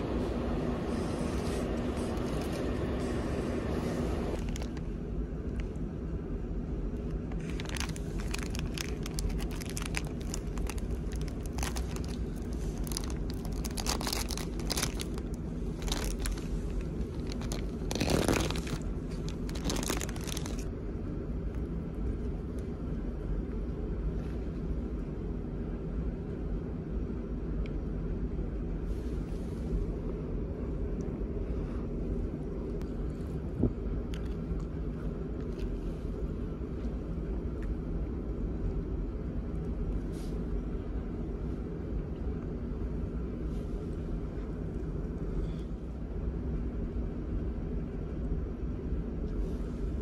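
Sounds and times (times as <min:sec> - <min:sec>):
low hum of ship engines: 0:00.0 - 0:50.0
plastic packaging crinkling and tearing: 0:04.3 - 0:04.9, 0:07.3 - 0:20.7.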